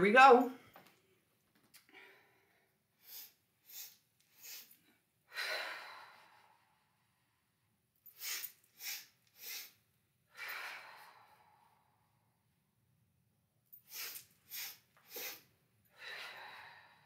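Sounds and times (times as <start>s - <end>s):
woman inhaling sharply: 3.0s - 4.8s, 8.2s - 9.8s, 13.9s - 17.0s.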